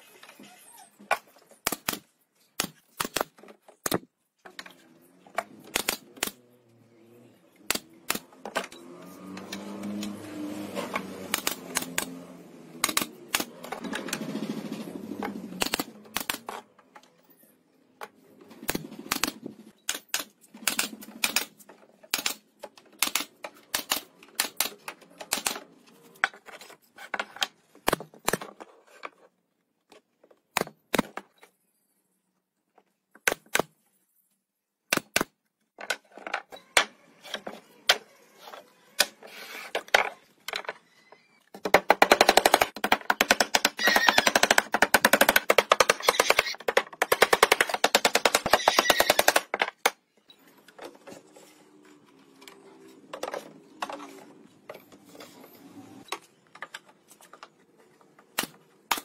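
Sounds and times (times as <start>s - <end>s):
nail gun firing into wood: 1.6s - 4.0s, 5.7s - 6.4s, 11.3s - 12.1s, 12.8s - 13.6s, 15.6s - 16.5s, 18.7s - 22.4s, 41.6s - 50.0s.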